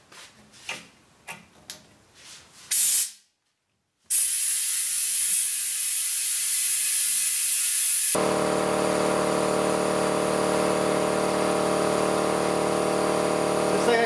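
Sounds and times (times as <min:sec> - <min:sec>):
compressed air hissing into tire: 0:02.7 - 0:03.2, 0:04.1 - 0:08.2.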